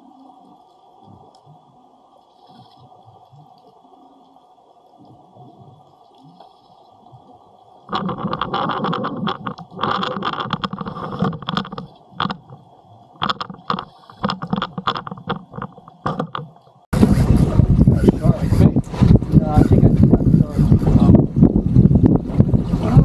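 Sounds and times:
underwater camera knocking and rubbing: 0:07.9 - 0:22.6.

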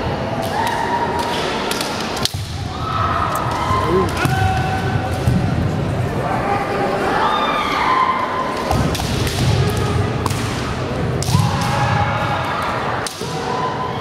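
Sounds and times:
fighters shouting: 0:03.6 - 0:04.6.

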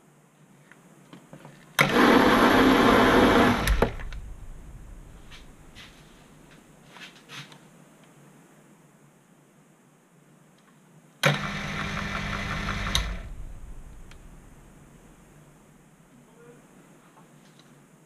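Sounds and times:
mini lathe running: 0:01.8 - 0:04.2, 0:11.3 - 0:13.4.

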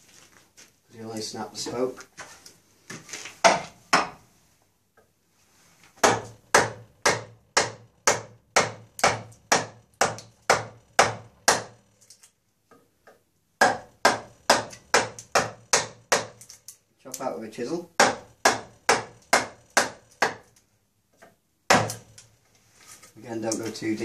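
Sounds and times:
mallet striking a chisel: 0:06.0 - 0:11.8, 0:13.6 - 0:16.4, 0:18.0 - 0:20.4, 0:21.7 - 0:22.1.

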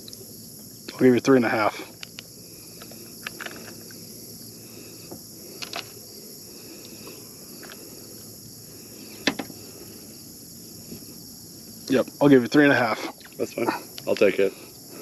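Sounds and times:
high-pitched insect chorus: 0:00.0 - 0:15.0
small clicks and knocks: 0:02.0 - 0:04.0, 0:05.1 - 0:06.0.

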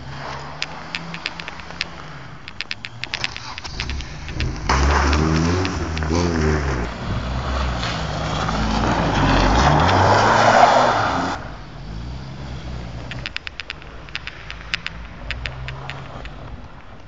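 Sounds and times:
sharp clicks: 0:00.0 - 0:07.0, 0:13.0 - 0:17.0
car engine revving: 0:00.0 - 0:17.0.

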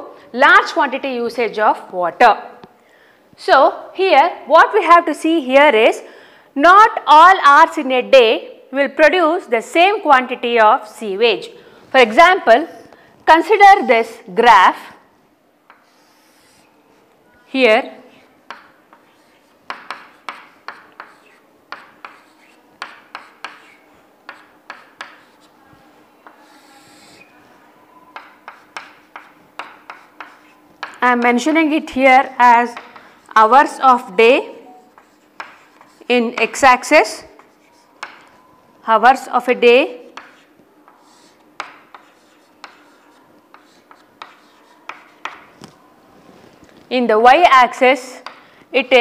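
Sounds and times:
chalk tapping on a chalkboard: 0:15.7 - 0:16.7, 0:18.1 - 0:25.6, 0:26.2 - 0:27.3, 0:28.1 - 0:31.3, 0:32.6 - 0:33.4, 0:34.8 - 0:36.6, 0:37.3 - 0:38.4, 0:40.1 - 0:45.6, 0:48.2 - 0:48.5.

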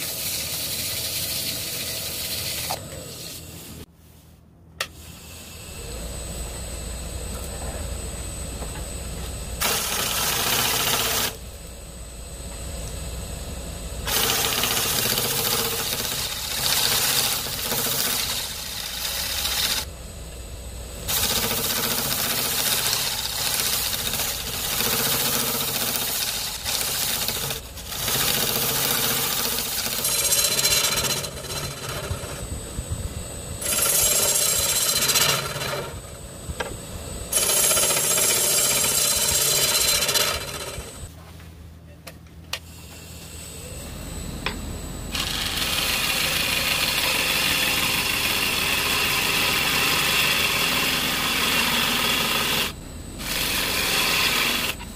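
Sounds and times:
lathe tool cutting wood: 0:09.6 - 0:11.4, 0:14.0 - 0:19.9, 0:21.1 - 0:32.4, 0:33.6 - 0:36.0, 0:37.3 - 0:41.1, 0:45.1 - 0:54.9.

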